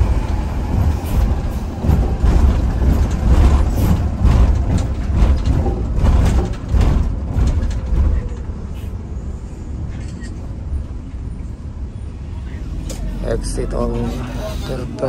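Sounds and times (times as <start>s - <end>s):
bus engine and road rumble: 0.0s - 15.0s
rattles and knocks: 0.7s - 8.6s.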